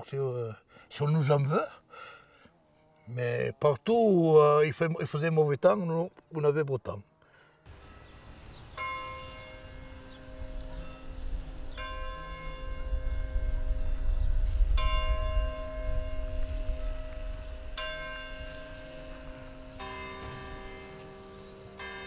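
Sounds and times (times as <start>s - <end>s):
church bell ringing: 7.8s - 22.0s.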